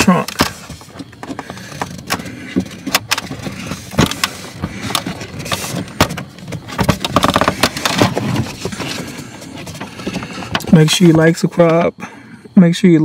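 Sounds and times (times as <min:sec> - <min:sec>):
sharp plastic knocks: 0:00.3 - 0:08.8
scraping and rustling: 0:00.3 - 0:11.8.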